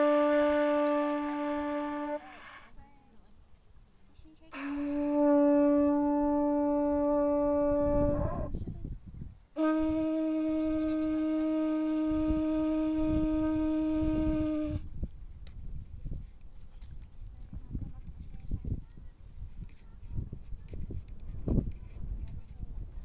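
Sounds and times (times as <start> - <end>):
horn trumpet long notes: 0.0 - 2.7, 4.6 - 8.5, 9.6 - 14.8.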